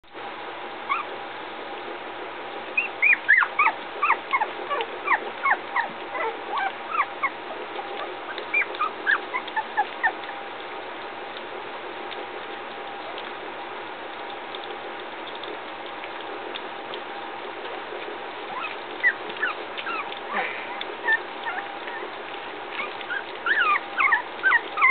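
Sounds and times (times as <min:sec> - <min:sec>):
puppies whimpering and squeaking: 0:00.9 - 0:01.2, 0:02.8 - 0:10.6, 0:18.5 - 0:24.9.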